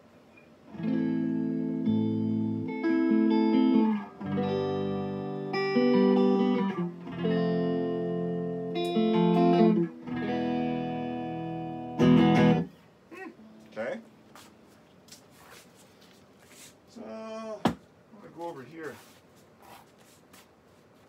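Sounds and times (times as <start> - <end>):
electric guitar strummed chords: 0.7 - 12.8.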